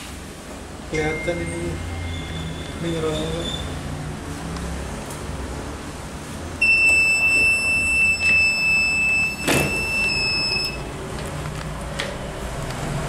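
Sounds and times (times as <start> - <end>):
timer buzzer high beep: 6.6 - 10.9.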